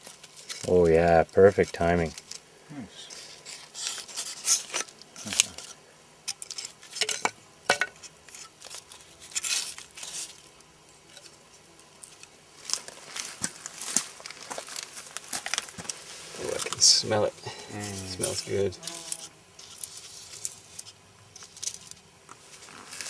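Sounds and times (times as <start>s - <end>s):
dry bark crinkling and crackling: 0.0s - 23.0s
scrapes and light clicks: 3.0s - 7.4s, 8.0s - 16.8s, 17.7s - 23.0s.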